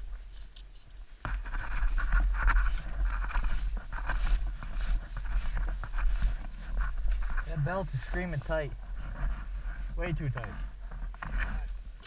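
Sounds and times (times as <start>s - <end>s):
snowmobile engine and track running: 1.2s - 12.0s.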